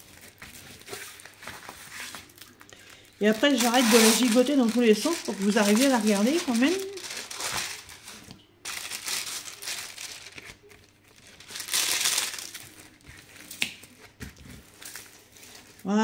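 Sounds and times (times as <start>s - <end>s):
plastic film crinkling: 0.0s - 15.9s.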